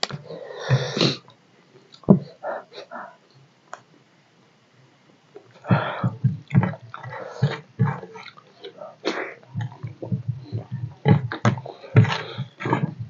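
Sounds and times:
slurping: 0:05.4 - 0:13.0
sucking fingers: 0:05.4 - 0:13.0
wet chewing and smacking: 0:05.4 - 0:13.0.

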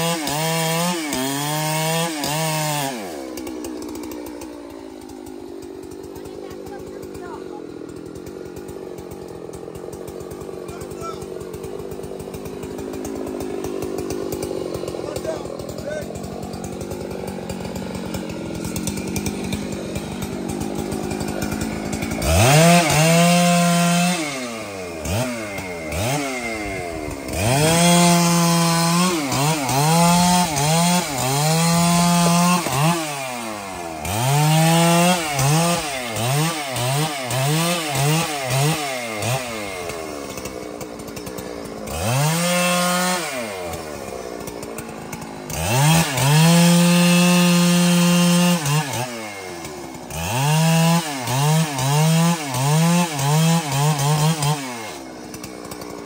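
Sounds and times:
chainsaw idling and revving: 0:00.0 - 0:56.0.

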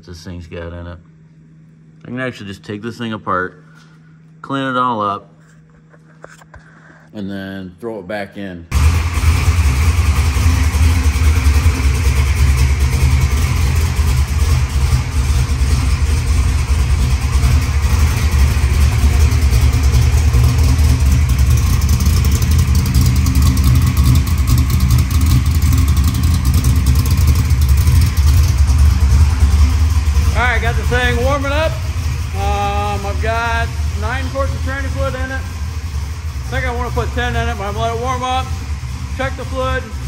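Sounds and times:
car engine idling loudly: 0:08.7 - 0:40.0.

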